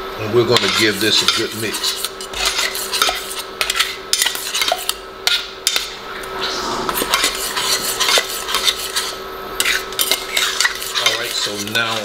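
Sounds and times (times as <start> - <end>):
metal spoon scraping saucepan: 0.5 - 5.0, 6.9 - 12.0.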